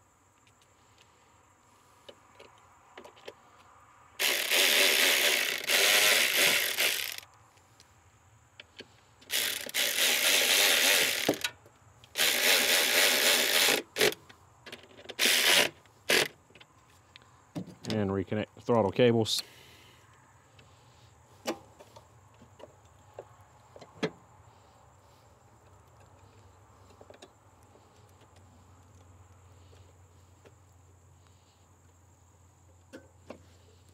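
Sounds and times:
cordless electric ratchet running: 4.2s - 7.3s, 9.2s - 14.2s, 15.1s - 16.3s.

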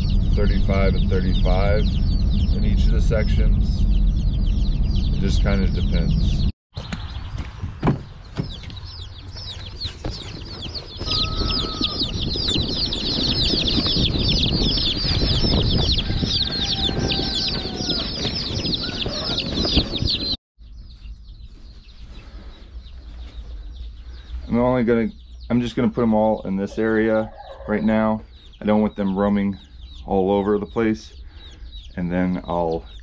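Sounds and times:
low rumble: 0.0s - 6.5s, 10.4s - 21.5s
baby chicks peeping: 0.0s - 33.0s.

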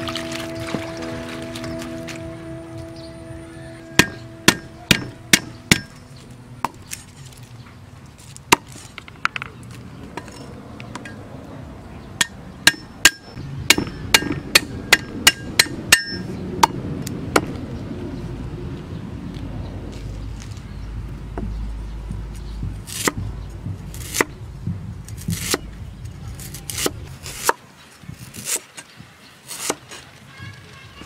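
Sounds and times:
cleaver chopping on wooden block: 4.0s - 6.0s, 12.2s - 16.8s, 22.6s - 24.4s, 25.1s - 25.7s, 29.5s - 30.0s.

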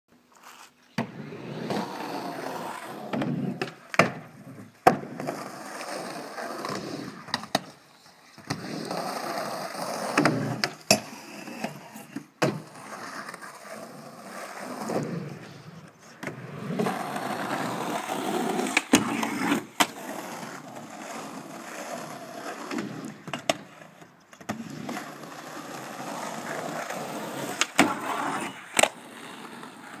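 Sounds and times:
skateboard wheels rolling: 0.3s - 30.0s
skateboard clacks: 3.0s - 5.9s, 9.6s - 13.5s, 16.1s - 30.0s.

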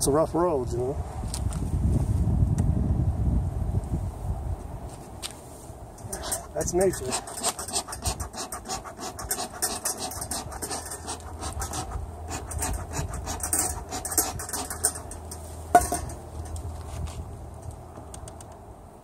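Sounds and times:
bee smoker bellows puffing: 6.0s - 16.5s.

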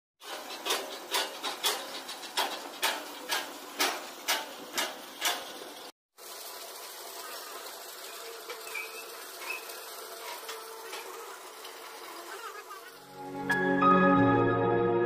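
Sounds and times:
pile boring rig knocking: 0.2s - 5.6s.

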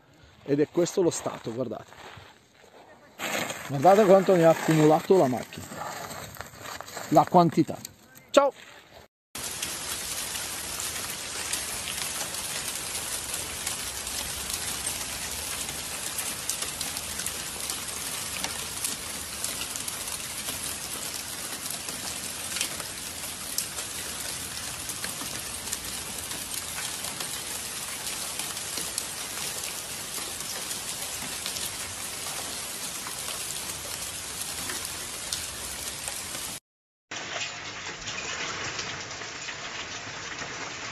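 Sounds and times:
ash falling on cars and pavement: 9.4s - 40.9s.

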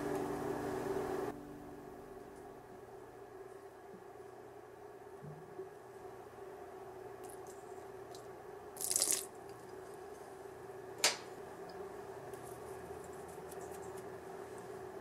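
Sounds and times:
faint hum: 0.0s - 15.0s
liquid pouring into metal bowl: 8.8s - 9.3s.

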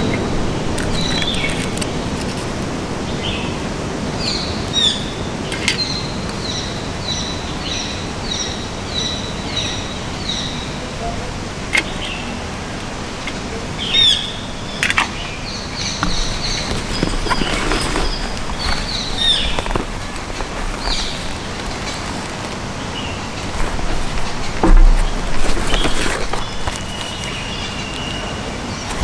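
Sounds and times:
background hiss: 0.0s - 29.0s
bird chirping: 13.8s - 29.0s.

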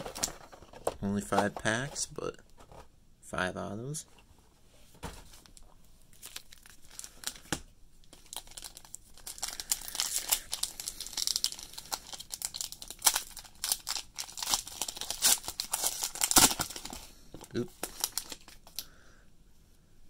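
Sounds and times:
foil wrapper crinkling and tearing: 6.1s - 7.5s, 8.1s - 18.9s.

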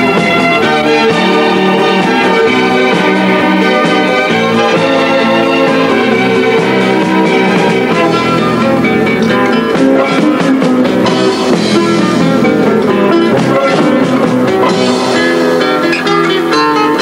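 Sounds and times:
band with guitar and drums: 0.0s - 17.0s.

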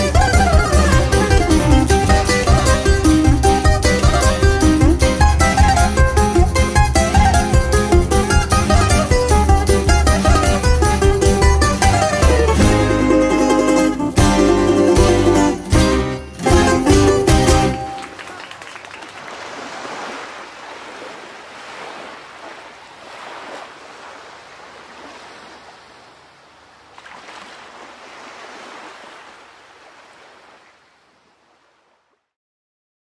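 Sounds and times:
waves washing over rocks: 19.2s - 31.9s.

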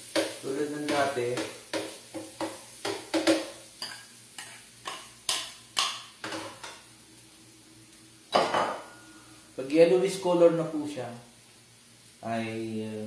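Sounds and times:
utensil stirring in a frying pan: 0.0s - 7.5s.

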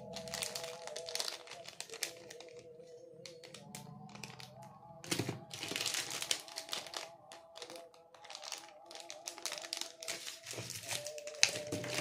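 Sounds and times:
background music: 0.0s - 12.0s
plastic wrappers crinkling: 0.0s - 12.0s.

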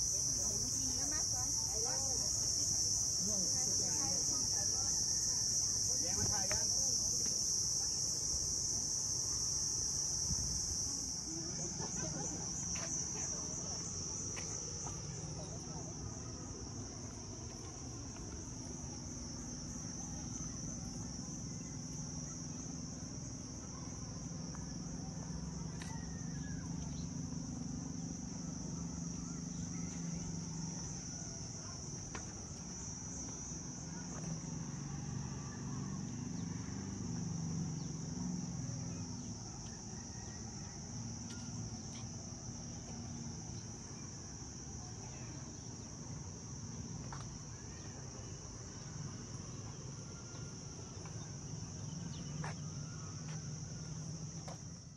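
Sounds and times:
high-pitched insect chorus: 0.0s - 54.9s
uneven low hum: 8.3s - 54.9s.

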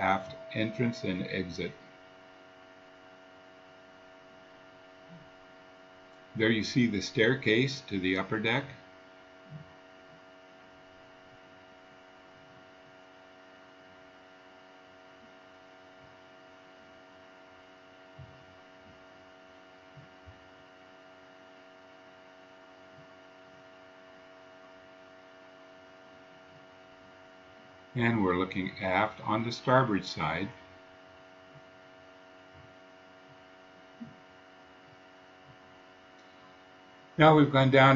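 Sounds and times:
faint steady hum: 0.0s - 37.9s
soft low thumps: 18.0s - 19.1s.

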